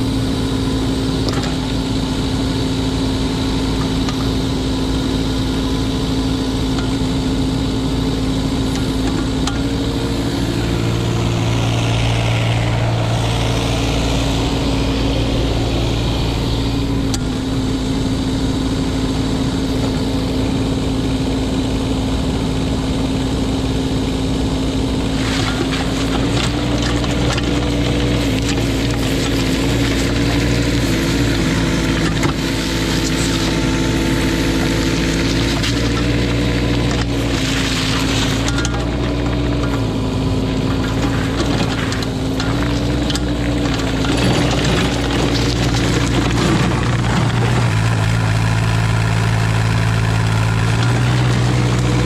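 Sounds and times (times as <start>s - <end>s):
diesel engine running: 0.0s - 52.0s
clanks and rattles: 40.6s - 48.0s.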